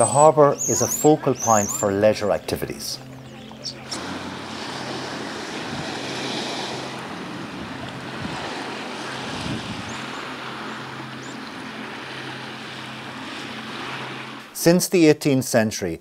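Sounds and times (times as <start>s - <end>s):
sea wash: 0.0s - 14.8s
wind: 0.0s - 16.0s
wind buffeting microphone: 3.1s - 11.4s.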